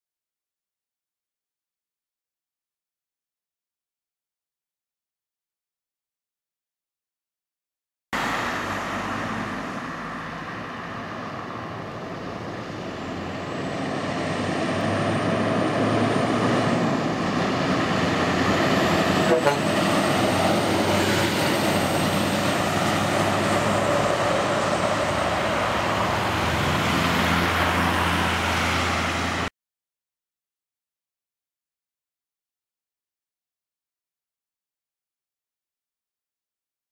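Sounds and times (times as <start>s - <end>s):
diesel truck passing: 8.2s - 29.5s.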